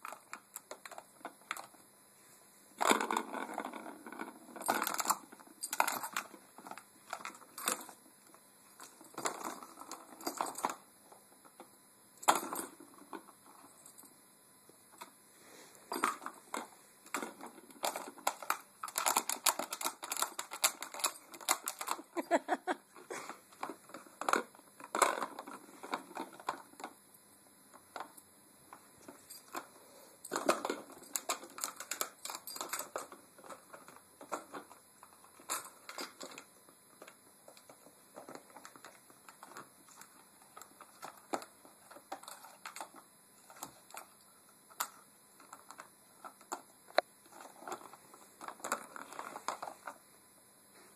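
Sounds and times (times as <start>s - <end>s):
plastic toy clicking and rattling: 16.0s - 22.2s, 30.3s - 34.7s.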